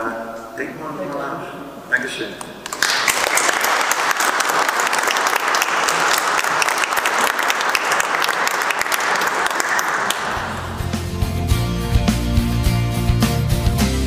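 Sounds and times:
audience applauding: 2.6 - 11.2.

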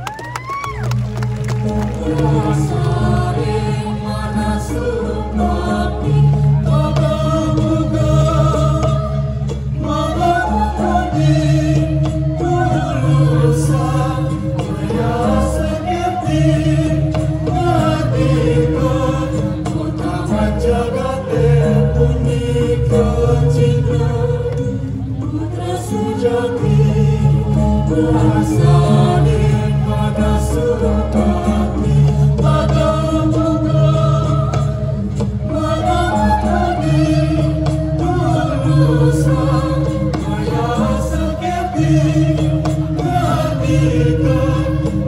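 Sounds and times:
choir singing: 0.0 - 45.0
gamelan playing: 0.0 - 45.0.

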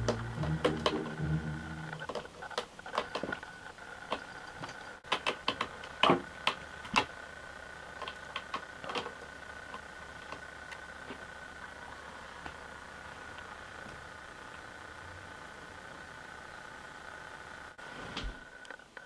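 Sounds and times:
faint high whine: 0.0 - 5.0.

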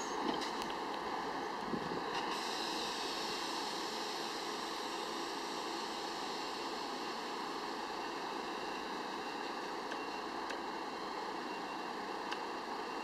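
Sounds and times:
subway train hum and hiss: 0.0 - 13.0.

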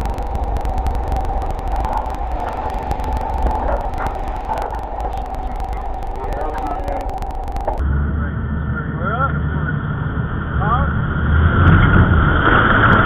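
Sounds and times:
heavy surf: 0.0 - 7.8, 9.5 - 13.0
wind rumbling on microphone: 0.0 - 8.8.

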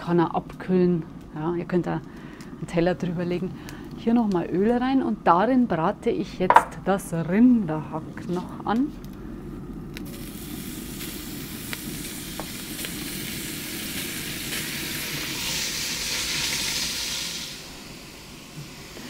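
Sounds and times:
spatula knocking on pot: 6.5 - 6.8
meat sizzling in hot oil: 10.0 - 19.0.

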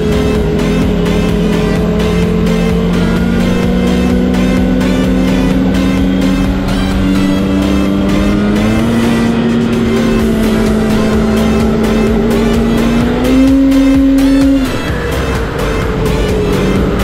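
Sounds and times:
snowmobile engine: 0.0 - 17.0.

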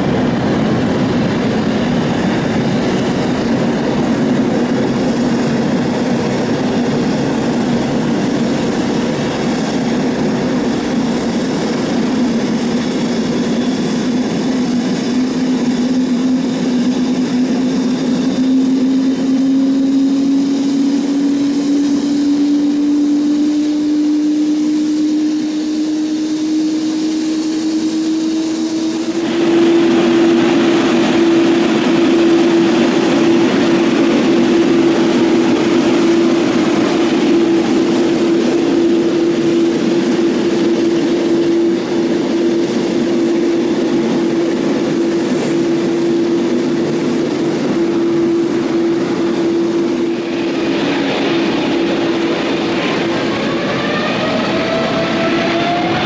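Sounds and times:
jet airliner engines whining: 0.0 - 56.0
landing airliner jet noise: 0.0 - 56.0.

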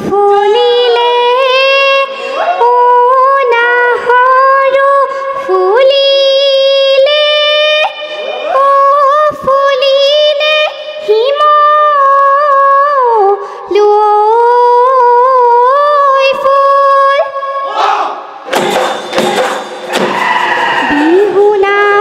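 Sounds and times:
girl singing into a microphone: 0.0 - 17.7, 20.9 - 22.0
dhol drum strokes: 18.4 - 21.0.

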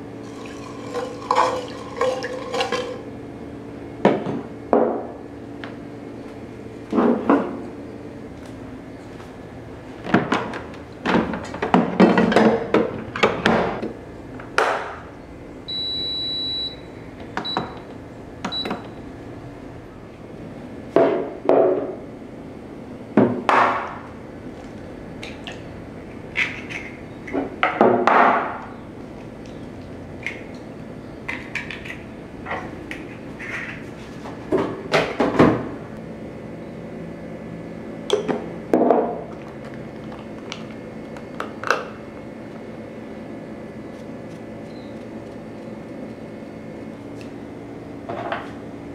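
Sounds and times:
rice cooker beeps: 15.7 - 17.8, 18.5 - 18.9.

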